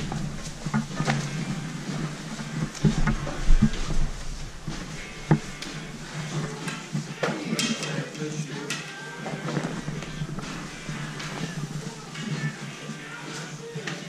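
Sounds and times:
sharp knocks and thumps: 0.0 - 7.7
hockey gear rustling: 0.0 - 14.0.

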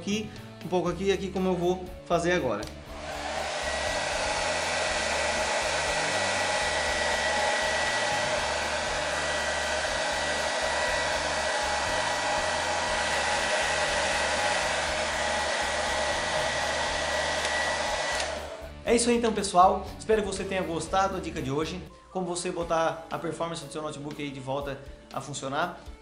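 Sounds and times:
hair dryer blowing air: 2.6 - 18.8.

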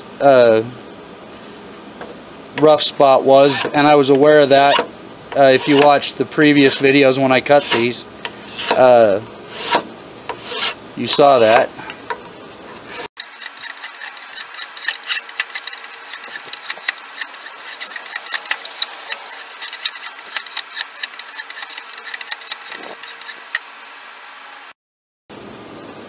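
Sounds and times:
hand file rasping on wood: 3.5 - 3.7, 5.5 - 6.0, 7.5 - 8.9, 9.5 - 10.8, 12.9 - 23.6.

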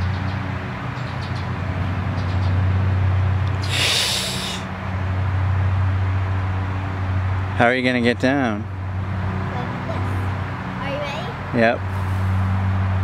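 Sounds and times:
hissing rush: 3.6 - 4.7.

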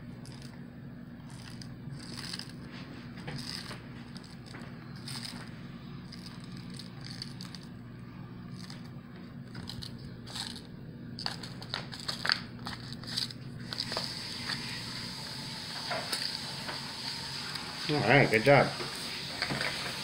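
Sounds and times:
steady low hum: 0.0 - 20.0
paper pouch crinkling: 1.2 - 7.8, 8.4 - 15.1.

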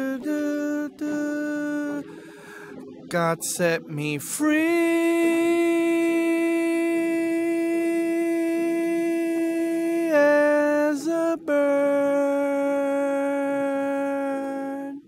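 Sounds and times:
person singing long notes: 0.0 - 15.0.

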